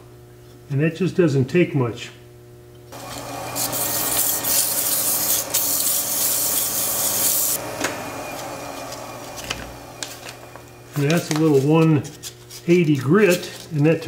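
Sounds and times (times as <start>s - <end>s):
lathe motor hum: 2.9s - 11.4s
sandpaper hissing on spinning wood: 3.0s - 7.6s.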